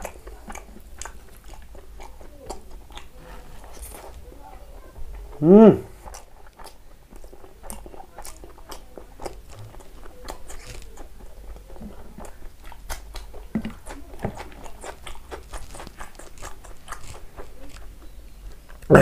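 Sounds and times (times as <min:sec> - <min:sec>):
person chewing food: 0:00.0 - 0:19.0
wet mouth clicks and smacks: 0:06.0 - 0:19.0.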